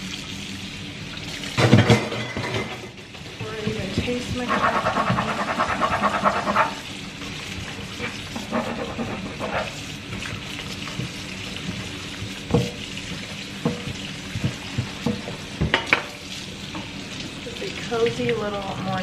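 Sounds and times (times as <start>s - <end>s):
tap water running into sink: 0.0s - 19.0s
dishes clinking: 1.6s - 2.9s, 15.7s - 16.2s.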